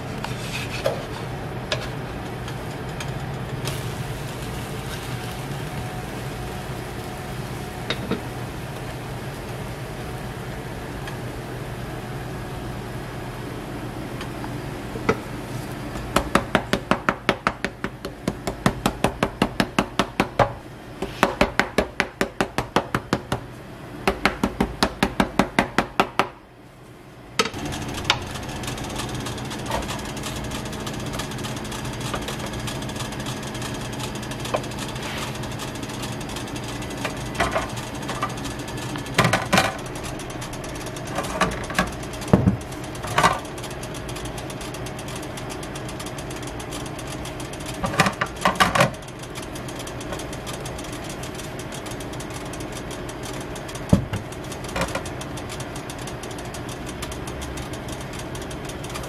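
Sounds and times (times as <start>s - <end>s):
steady hum: 0.0s - 59.0s
wooden spatula tapping griddle: 7.8s - 8.9s, 15.9s - 23.4s.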